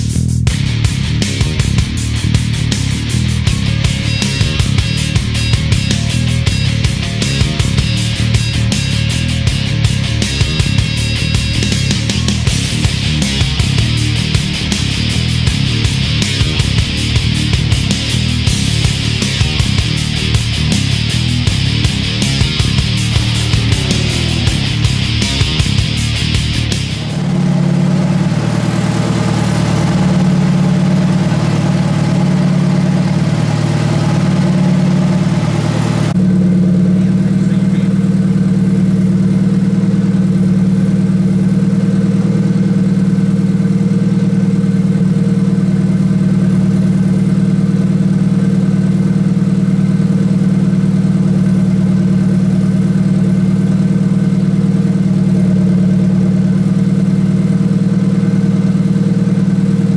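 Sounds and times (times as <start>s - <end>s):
car engine idling: 0.0s - 59.9s
hissing noise: 14.0s - 28.2s.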